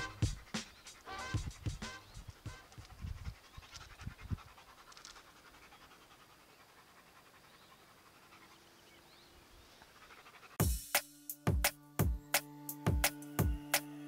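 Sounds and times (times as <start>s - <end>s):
dog panting: 0.0s - 10.6s.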